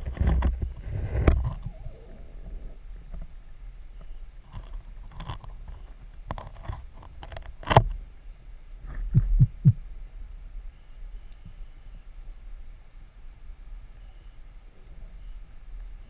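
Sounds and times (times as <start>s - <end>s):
underwater rumble of moving water: 0.0s - 3.8s
low thumps: 8.9s - 9.9s.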